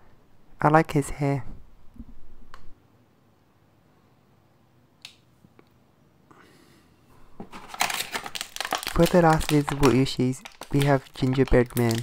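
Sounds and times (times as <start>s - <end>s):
plastic packaging crinkling: 7.4s - 12.0s.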